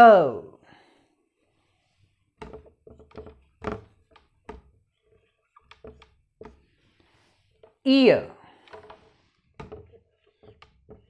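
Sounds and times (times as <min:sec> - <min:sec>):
marker tapping on whiteboard: 0:02.4 - 0:06.6.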